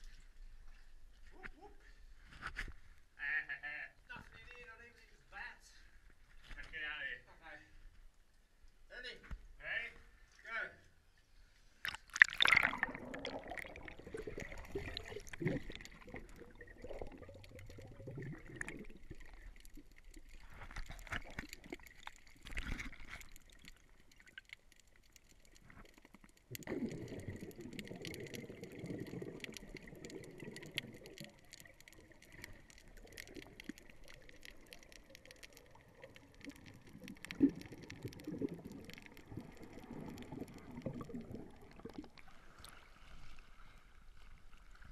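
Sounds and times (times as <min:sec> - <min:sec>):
underwater gurgling and bubbling: 0:12.2 - 0:24.5, 0:25.4 - 0:43.4.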